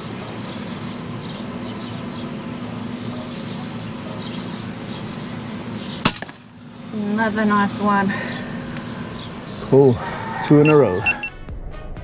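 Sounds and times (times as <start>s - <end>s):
steady low hum: 0.0s - 11.7s
air rifle shot: 6.0s - 6.5s
faint bird chirps: 8.8s - 11.4s.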